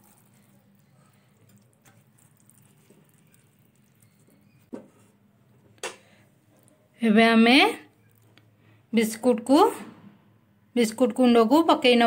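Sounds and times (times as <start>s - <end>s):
syrup bubbling in pan: 0.0s - 4.8s
spatula stirring: 0.0s - 5.2s.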